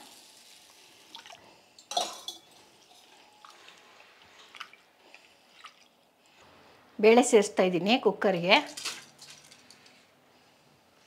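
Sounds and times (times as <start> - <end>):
water sloshing and dripping: 1.1 - 6.4.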